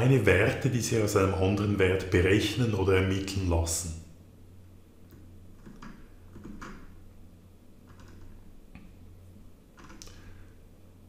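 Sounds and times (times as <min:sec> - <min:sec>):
low steady hum: 0:00.0 - 0:11.0
computer keyboard clicks and taps: 0:05.1 - 0:06.9, 0:07.9 - 0:08.9, 0:09.8 - 0:10.2.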